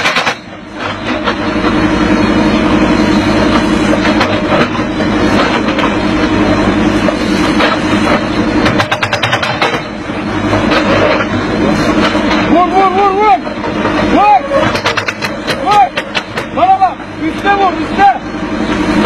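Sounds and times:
clatter of knocks: 0.0s - 1.4s, 7.6s - 9.9s, 14.6s - 16.6s
excavator engine running: 0.0s - 19.0s.

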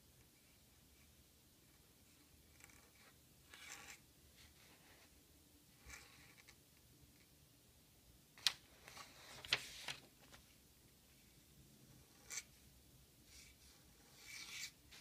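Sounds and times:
dip pen scratching on paper: 2.5s - 4.0s.

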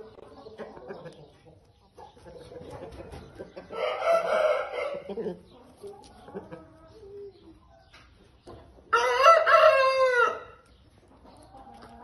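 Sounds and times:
rooster crowing: 3.8s - 5.1s, 8.9s - 10.6s.

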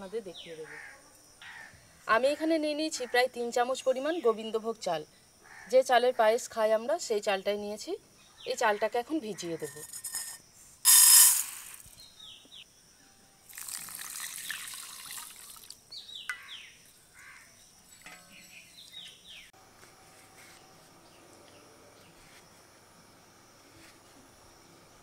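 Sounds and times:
water pouring into steel bowl: 13.5s - 15.8s.

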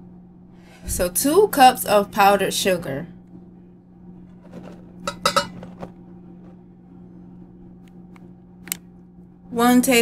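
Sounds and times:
steady low hum: 0.0s - 10.0s
glass bowl clinking on steel bowl: 5.0s - 5.6s.

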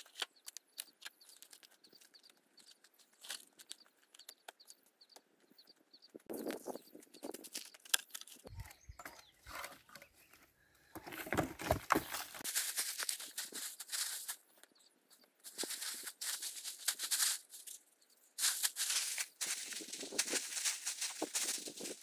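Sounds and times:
dry leaves and twigs crunching: 0.0s - 4.8s, 6.2s - 14.7s, 15.4s - 22.0s
plastic sack crinkling: 11.0s - 14.4s, 15.4s - 17.8s, 18.4s - 22.0s.

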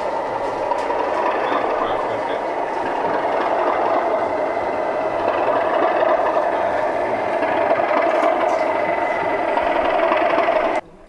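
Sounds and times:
model train motors whirring: 0.0s - 11.0s.

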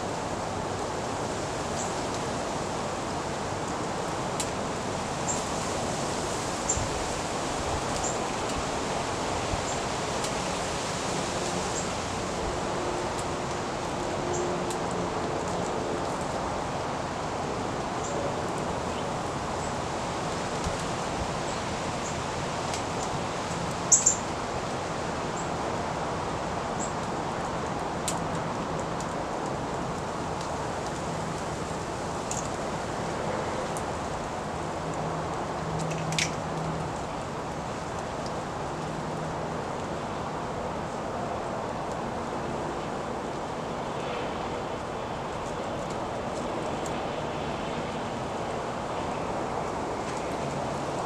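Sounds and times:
outdoor background hiss: 0.0s - 51.0s
songbird chips: 23.9s - 24.2s.

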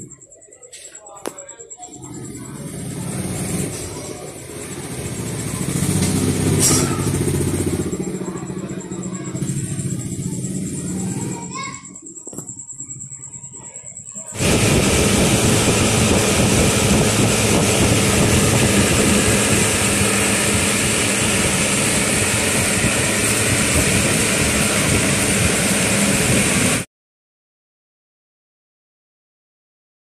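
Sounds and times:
table fan running: 1.3s - 26.9s.

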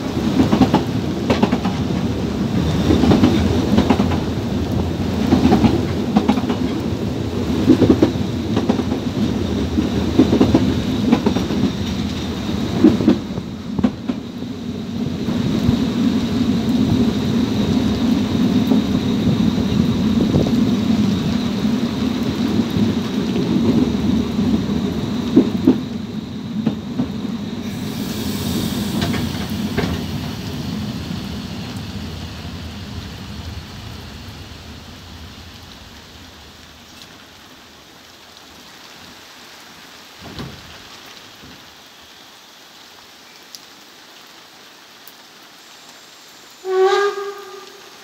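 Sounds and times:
steam train rumble: 0.0s - 37.4s
heavy rain: 0.0s - 48.0s.

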